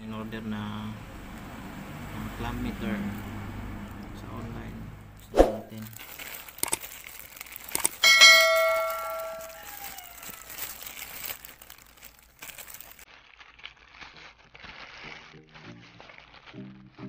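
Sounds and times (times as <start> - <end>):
plastic bag crinkling and rustling: 5.7 - 17.0
notification bell ding: 8.0 - 9.6.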